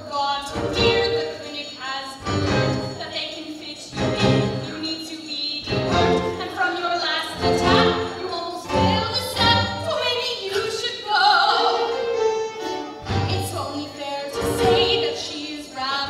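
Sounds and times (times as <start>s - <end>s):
woman singing: 0.0s - 12.1s, 13.1s - 16.0s
instrumental accompaniment: 2.2s - 3.1s, 3.9s - 4.9s, 5.6s - 6.7s, 7.3s - 10.8s, 11.4s - 15.4s.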